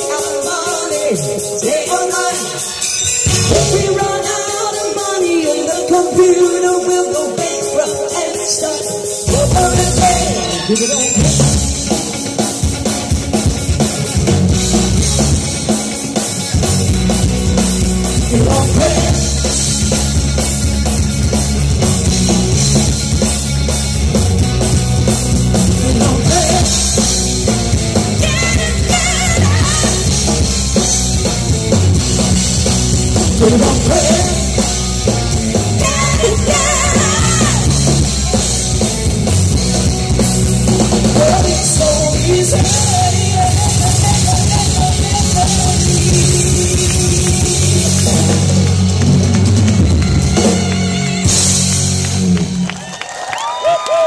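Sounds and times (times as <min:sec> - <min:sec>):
person singing: 0:00.0 - 0:11.5, 0:18.2 - 0:19.5, 0:25.7 - 0:27.0, 0:33.4 - 0:34.7, 0:35.8 - 0:37.8, 0:41.0 - 0:48.5
live rock band playing: 0:00.0 - 0:53.6.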